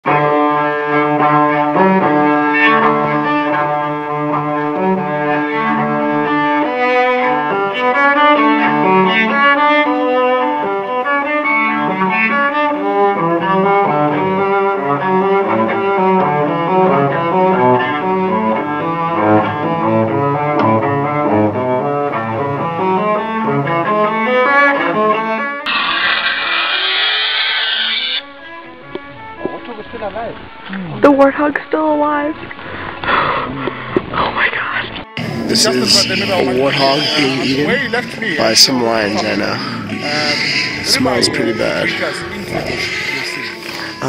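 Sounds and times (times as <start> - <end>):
instrumental background music: 0.1 - 25.7, 28.2 - 32.3.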